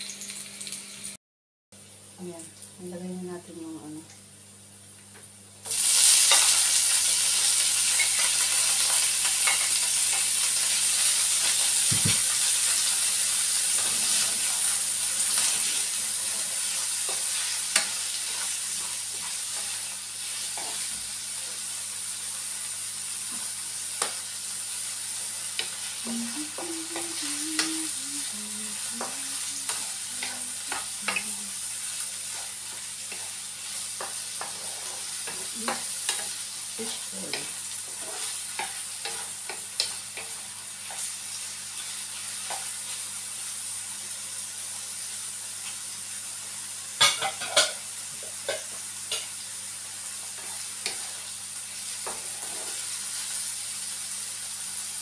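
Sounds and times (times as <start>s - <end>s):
food sizzling in hot oil: 0.0s - 1.2s, 1.8s - 55.0s
wooden spatula scraping pan: 52.1s - 52.8s.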